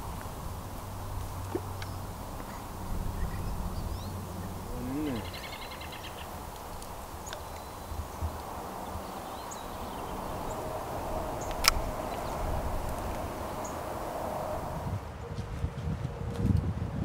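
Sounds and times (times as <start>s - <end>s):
birds chirping faintly: 0.0s - 15.0s
fishing reel whirring: 9.6s - 14.8s.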